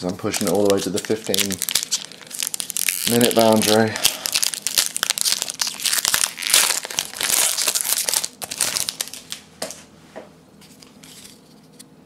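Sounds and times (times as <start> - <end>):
foil wrapper crinkling: 0.0 - 9.4.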